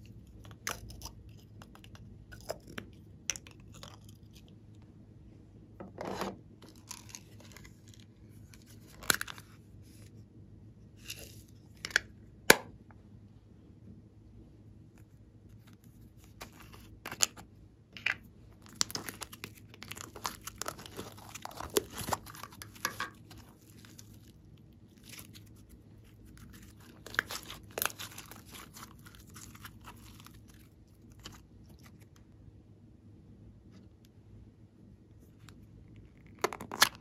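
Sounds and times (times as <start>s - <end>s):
slime crackling and tearing: 18.6s - 32.0s.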